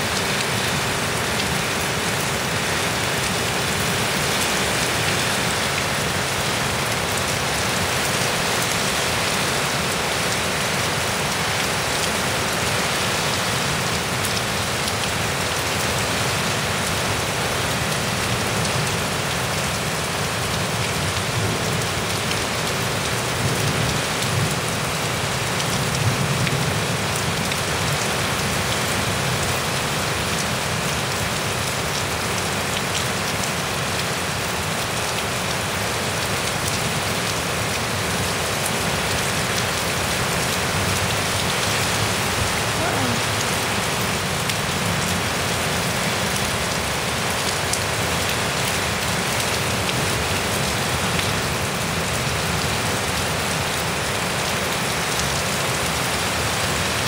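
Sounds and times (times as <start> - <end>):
heavy rain on ground and roofs: 0.0 - 57.0.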